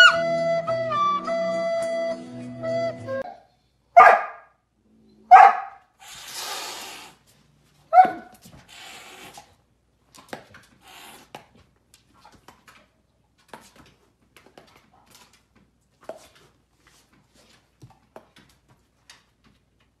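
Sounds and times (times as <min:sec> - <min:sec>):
light paw taps and scuffs: 0:10.0 - 0:20.0.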